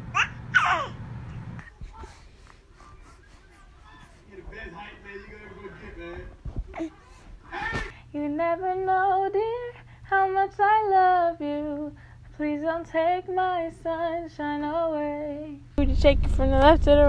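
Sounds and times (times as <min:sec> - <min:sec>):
woman singing: 0:08.0 - 0:17.0.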